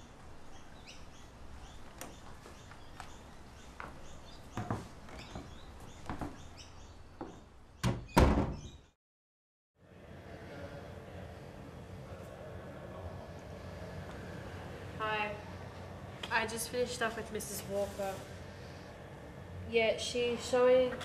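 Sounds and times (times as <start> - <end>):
birds chirping: 0.0 - 9.0
front door shutting: 3.9 - 8.9.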